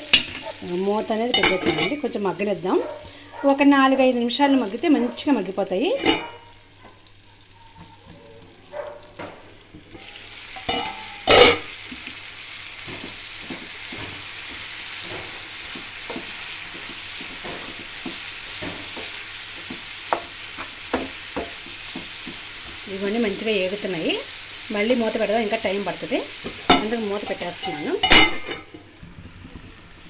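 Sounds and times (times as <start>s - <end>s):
food sizzling in oil: 0.0s - 30.0s
metal lid clank: 1.3s - 2.0s, 6.0s - 6.5s, 10.0s - 11.7s, 26.7s - 28.8s.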